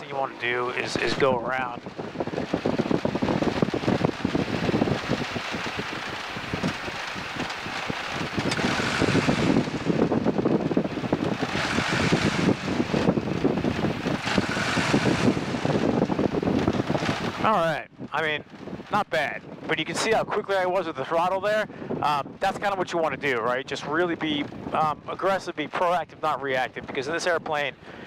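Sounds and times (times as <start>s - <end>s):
rushing wind noise: 0.0s - 28.0s
light aircraft engine at low power: 0.1s - 17.4s.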